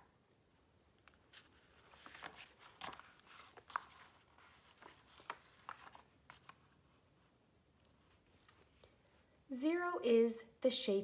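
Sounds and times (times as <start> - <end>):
book pages turning: 1.0 - 7.3
paper rustling: 1.0 - 7.3.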